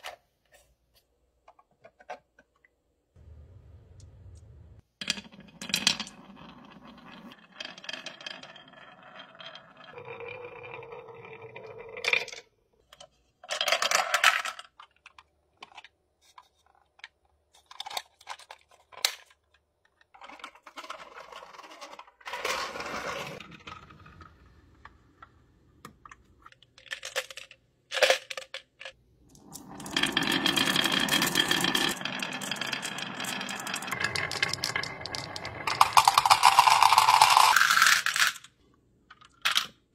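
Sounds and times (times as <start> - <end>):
marbles rolling down wooden track: 5.0 - 12.5, 20.2 - 24.9, 29.4 - 38.4.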